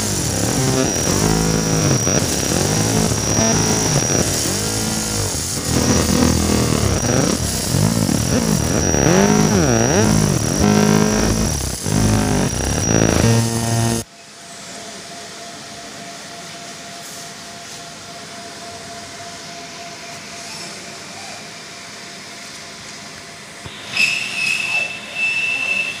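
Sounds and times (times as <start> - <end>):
high whine: 0.0 - 14.1
laser machine buzzing: 0.0 - 14.1.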